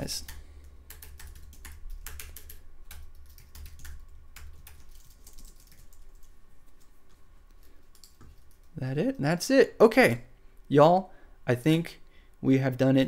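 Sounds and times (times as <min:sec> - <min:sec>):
keyboard typing: 0:00.0 - 0:08.8
low steady hum: 0:00.0 - 0:13.0.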